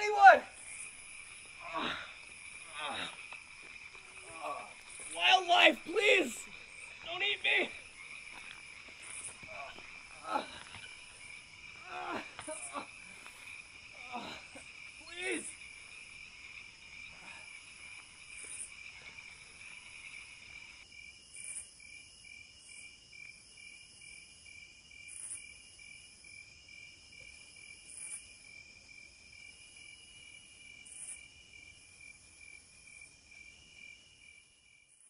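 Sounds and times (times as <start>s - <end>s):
high-pitched insect calls: 0.0s - 20.8s
cricket trill: 0.0s - 35.0s.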